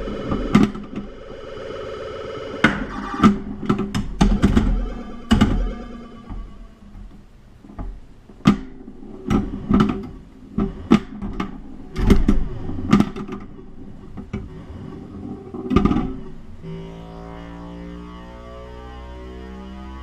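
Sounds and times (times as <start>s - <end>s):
electronic machine tones: 0.0s - 7.1s, 16.6s - 20.0s.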